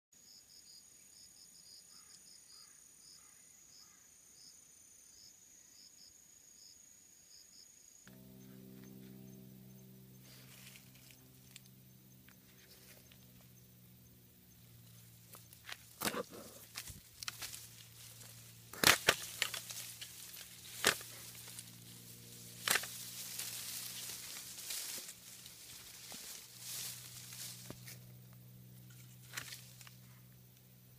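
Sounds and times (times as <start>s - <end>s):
higher insect trill: 0.2s - 30.9s
insects trilling: 0.2s - 30.9s
leaves rustling: 10.2s - 30.3s
loppers snipping bamboo stems: 15.3s - 21.8s, 22.6s - 28.0s, 28.9s - 30.0s.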